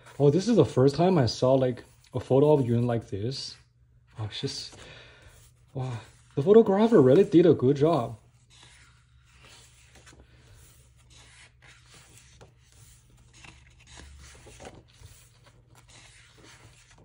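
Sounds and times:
paper pages rustling: 0.0s - 17.0s.

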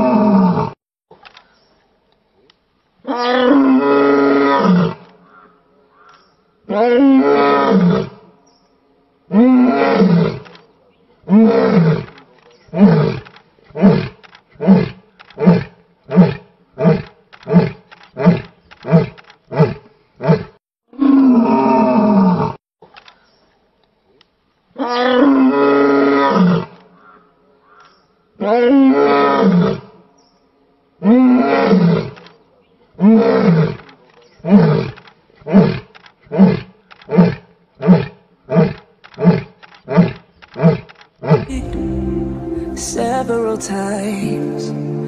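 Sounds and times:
lion roaring: 9.3s - 10.6s, 33.0s - 41.5s.

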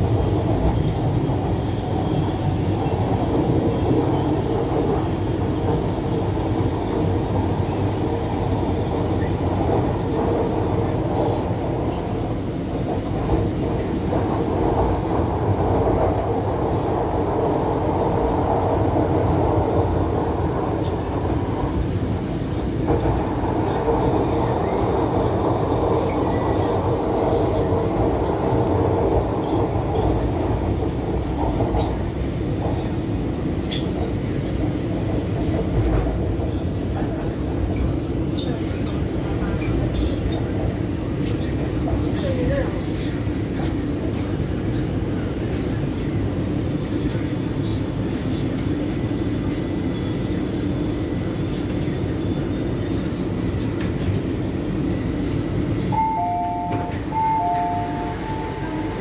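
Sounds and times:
metro train wheels rumbling: 0.0s - 59.0s
two-tone door chime: 56.0s - 58.7s.

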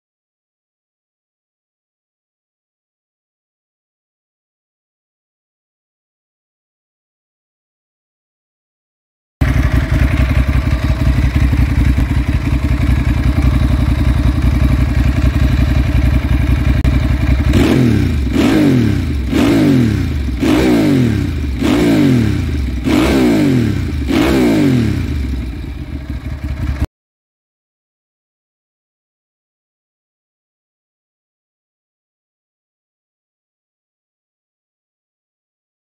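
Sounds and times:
motorcycle engine idling: 9.4s - 26.9s
motorcycle throttle blips: 9.4s - 26.9s.

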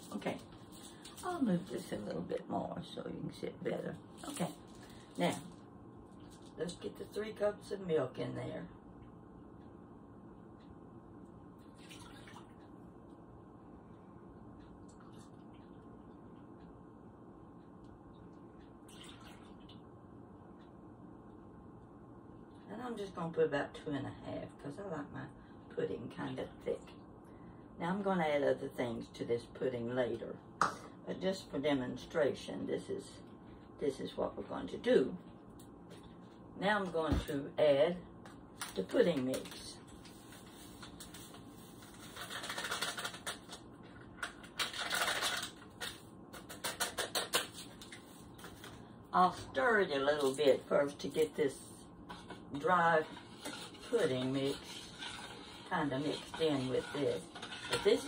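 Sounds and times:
packet crinkling and rustling: 38.6s - 48.8s
packet crackling: 41.9s - 47.9s.

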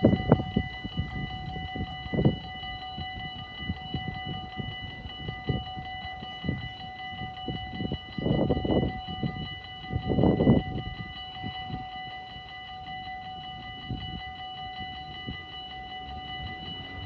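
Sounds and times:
level crossing bell ringing: 0.0s - 17.0s.

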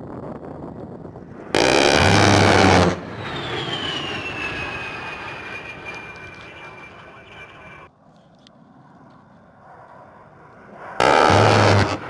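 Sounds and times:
jet engine whine: 0.0s - 12.0s
rotary cannon firing burst: 1.2s - 5.8s, 11.0s - 12.0s.

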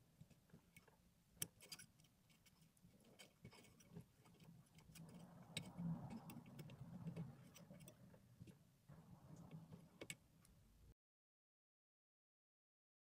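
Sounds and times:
metal pick scraping and clicking: 0.2s - 8.6s, 9.4s - 10.6s.

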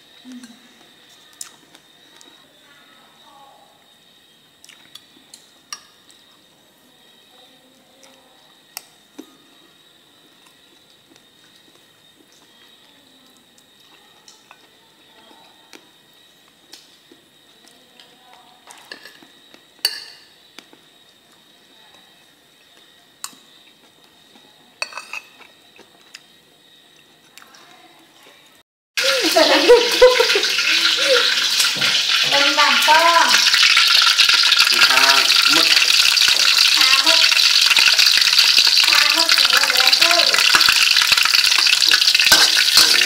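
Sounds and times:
cutlery clatter: 18.8s - 19.2s, 19.8s - 20.3s, 24.8s - 25.6s, 40.4s - 43.0s
metal spoon clinking on plate: 19.8s - 20.3s, 24.8s - 25.5s, 41.6s - 43.0s.

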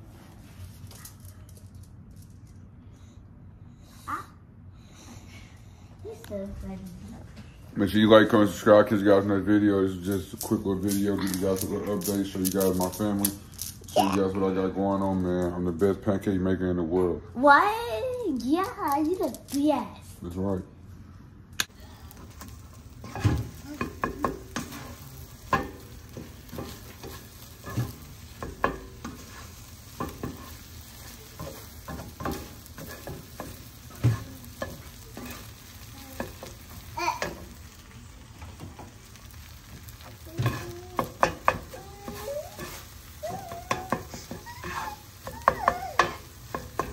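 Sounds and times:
eggs sizzling in frying pan: 7.8s - 16.0s, 17.6s - 19.7s, 21.6s - 46.9s
spatula clicking and scraping pan: 22.1s - 37.9s, 38.6s - 46.9s.

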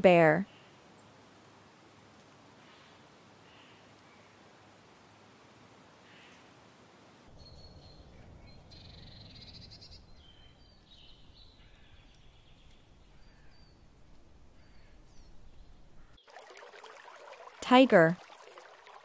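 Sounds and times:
low rumble: 7.3s - 13.1s.

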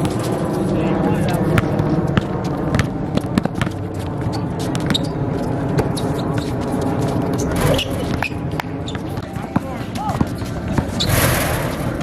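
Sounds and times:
sneakers squeaking on court: 1.5s - 12.0s
faint voices: 4.2s - 10.9s.

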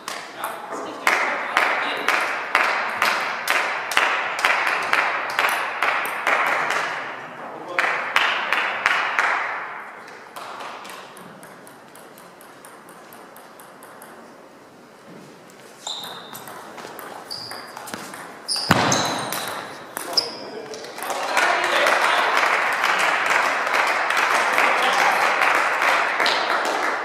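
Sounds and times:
table tennis ball clicks: 10.8s - 14.3s.

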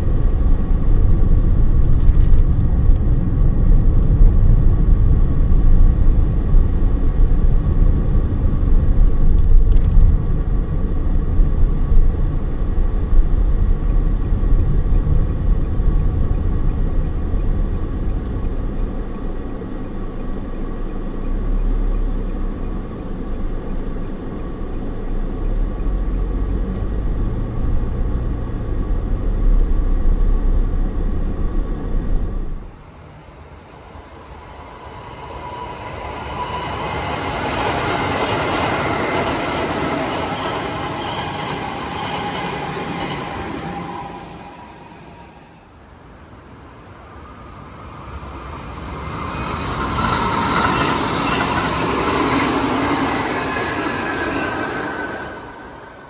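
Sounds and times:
car interior road and engine rumble: 0.0s - 34.5s.

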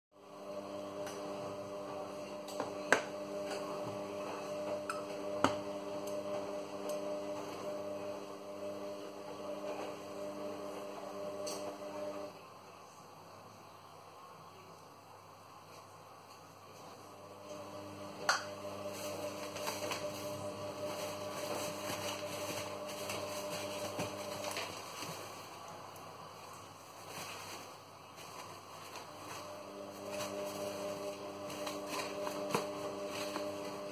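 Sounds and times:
electrical hum: 16.7s - 33.9s
paper towel rustling: 18.6s - 33.9s.

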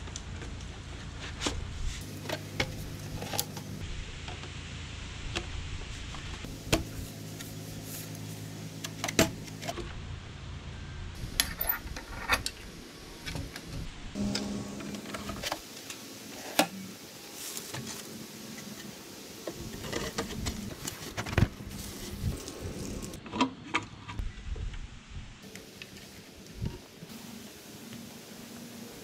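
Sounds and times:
steady low hum: 0.0s - 23.2s.

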